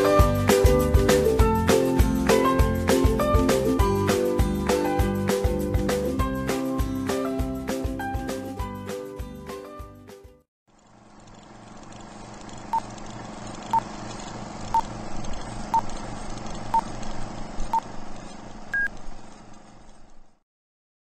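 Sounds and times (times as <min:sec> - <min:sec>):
film projector running: 0:10.7 - 0:20.4.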